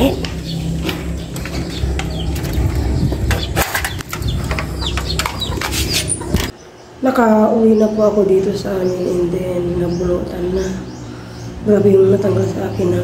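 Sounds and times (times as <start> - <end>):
wind buffeting microphone: 0.0 - 6.6.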